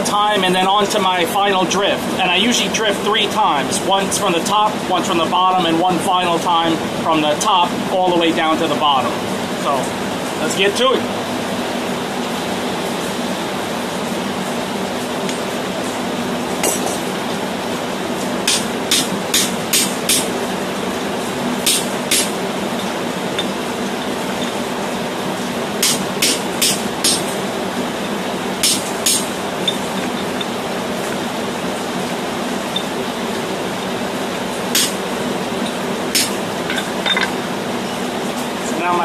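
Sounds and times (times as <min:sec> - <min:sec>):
hammer striking steel: 0:18.5 - 0:20.3, 0:21.6 - 0:22.4, 0:25.8 - 0:27.3, 0:28.6 - 0:29.8, 0:34.7 - 0:35.0, 0:36.2 - 0:37.3.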